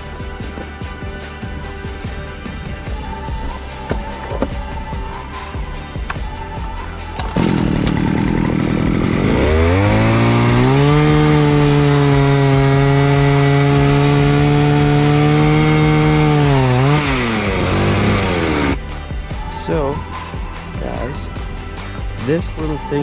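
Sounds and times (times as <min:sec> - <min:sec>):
ice auger engine revving: 0:07.1 - 0:18.8.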